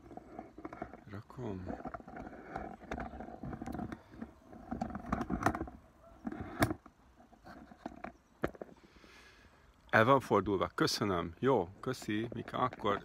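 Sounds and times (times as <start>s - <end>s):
tripod clicks and scraping: 0.0s - 8.8s.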